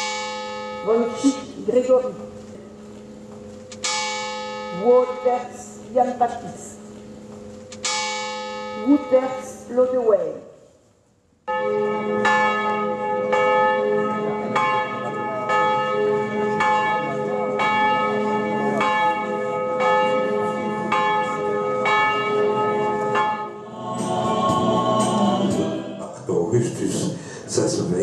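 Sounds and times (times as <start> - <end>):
large bell tolling: 0.0 - 9.7, 11.5 - 23.9.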